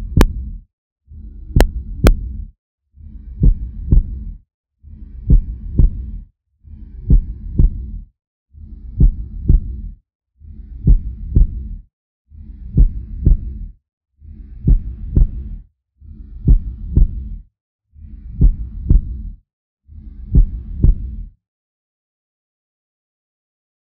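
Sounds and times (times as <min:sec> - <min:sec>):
heartbeat thumps: 0:00.0 - 0:02.5, 0:03.4 - 0:04.4, 0:05.1 - 0:06.2, 0:07.0 - 0:08.0, 0:08.9 - 0:09.9, 0:10.8 - 0:11.8, 0:12.7 - 0:13.7, 0:14.6 - 0:15.6, 0:16.4 - 0:17.4, 0:18.1 - 0:19.4, 0:20.3 - 0:21.2.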